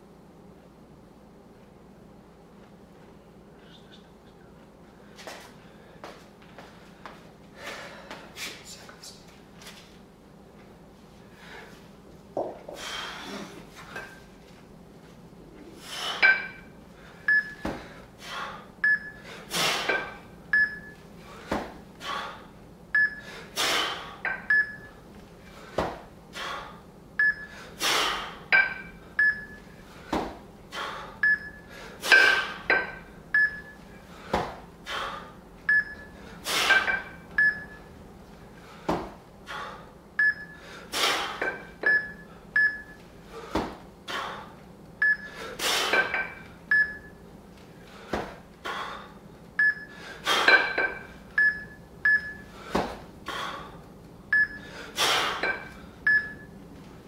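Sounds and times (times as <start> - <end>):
sharp breaths: 15.7 - 20.2, 21.2 - 24.2, 34.0 - 35.4, 38.6 - 41.4, 47.8 - 49.2, 52.4 - 53.8.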